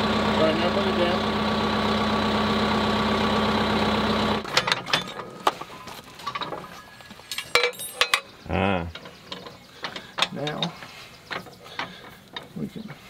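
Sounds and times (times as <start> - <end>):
tractor diesel engine running: 0.0 - 7.8
metallic clinks and knocks: 4.6 - 12.6.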